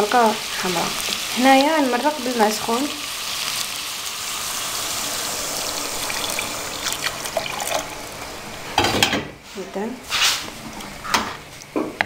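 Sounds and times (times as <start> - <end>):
water pouring into a pan: 2.9 - 8.8.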